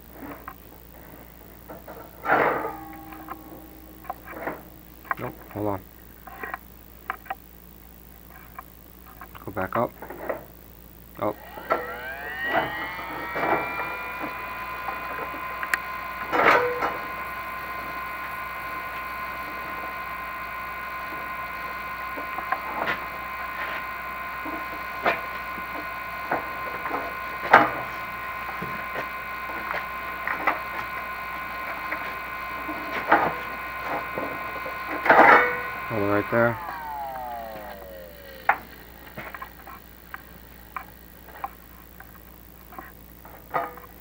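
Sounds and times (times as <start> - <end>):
electric motor whining: 11.2 - 43.9.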